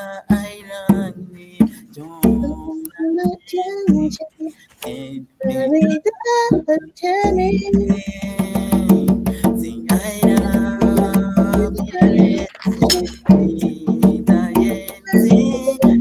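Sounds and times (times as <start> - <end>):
person singing pop song: 0.0 - 16.0
musical accompaniment: 5.4 - 16.0.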